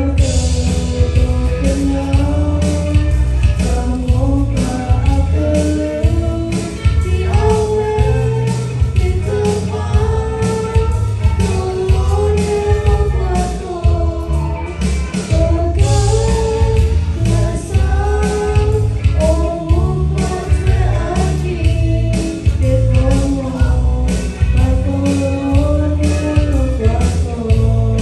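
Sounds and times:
instrumental accompaniment with bass: 0.0s - 28.0s
man and woman singing: 0.0s - 28.0s.

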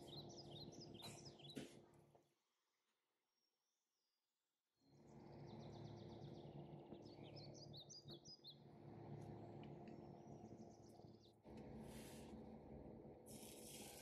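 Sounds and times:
small birds chirping: 0.0s - 1.6s, 4.8s - 11.5s.

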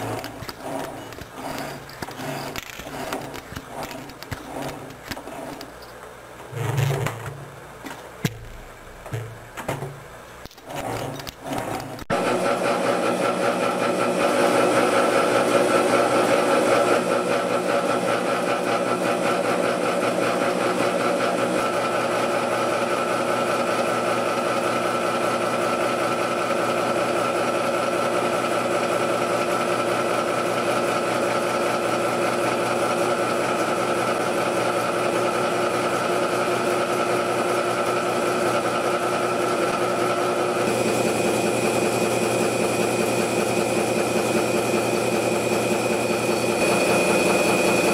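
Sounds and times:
gear-cutting machine drone: 0.0s - 7.5s, 10.4s - 22.9s, 31.4s - 47.9s
higher machine tone: 0.0s - 7.6s.

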